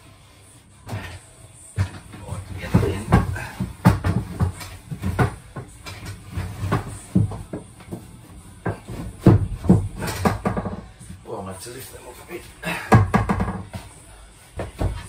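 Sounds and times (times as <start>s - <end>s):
wooden boards knocking and scraping: 1.8s - 10.9s.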